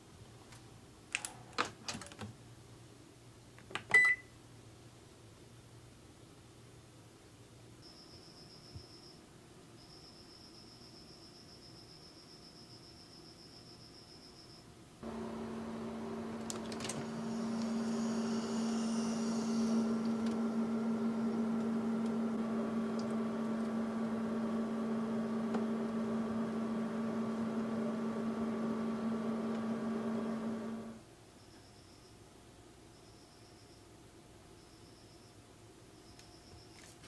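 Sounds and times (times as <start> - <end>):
oven humming: 15.0 - 31.0.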